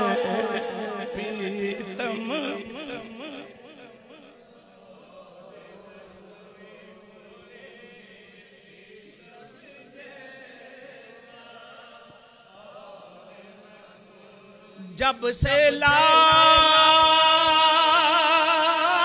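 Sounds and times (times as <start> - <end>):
men chanting: 0.0 - 8.8, 9.4 - 19.0.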